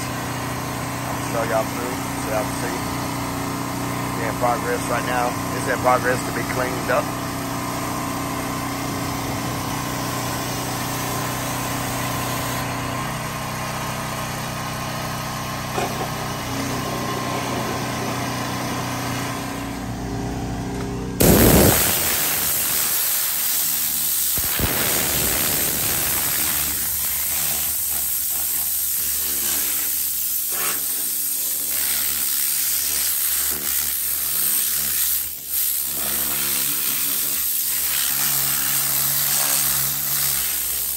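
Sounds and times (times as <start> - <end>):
compressed air blow gun hissing: 21.2 - 40.9
spray hiss: 21.2 - 40.9.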